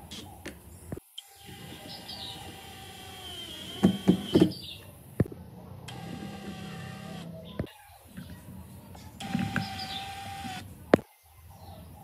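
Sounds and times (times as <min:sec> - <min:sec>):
cordless driver driving screw: 0:01.5 - 0:04.5, 0:05.9 - 0:07.3, 0:09.2 - 0:10.6.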